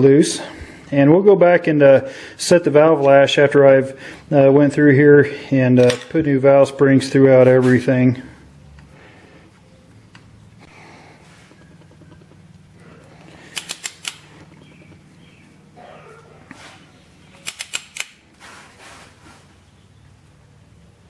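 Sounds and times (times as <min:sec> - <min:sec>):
low steady hum: 0:00.0 - 0:21.0
valve spring compressor clicks: 0:13.2 - 0:15.1, 0:17.4 - 0:18.2.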